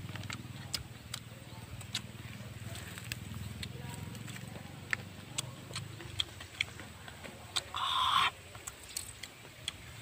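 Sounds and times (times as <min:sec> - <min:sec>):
mouth clicks and smacks eating: 0:00.0 - 0:10.0
rustle of handling food on leaf: 0:02.2 - 0:05.0.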